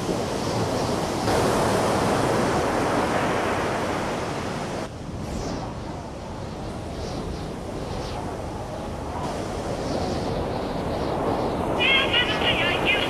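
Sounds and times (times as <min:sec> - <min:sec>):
ocean waves rushing: 0:00.0 - 0:05.2, 0:09.2 - 0:13.0.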